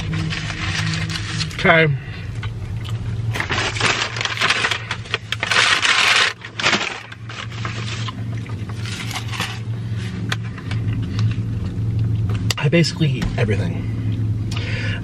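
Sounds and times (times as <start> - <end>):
paper and plastic packaging crinkling: 0.0 - 1.9, 3.3 - 10.6
car engine idling hum: 0.0 - 15.0.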